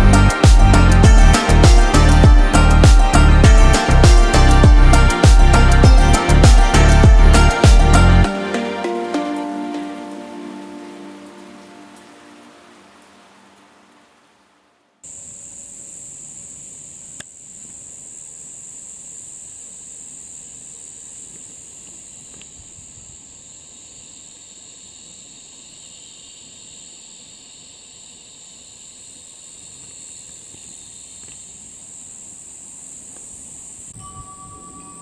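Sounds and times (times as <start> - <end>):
high-pitched insect drone: 0.0 - 12.9, 15.0 - 35.0
lower insect chorus: 0.0 - 14.4, 15.0 - 35.0.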